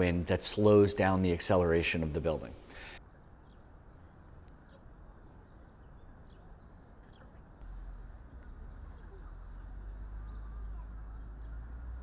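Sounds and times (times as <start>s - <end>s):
faint bird chirps: 3.0s - 12.0s
low steady rumble: 7.5s - 12.0s.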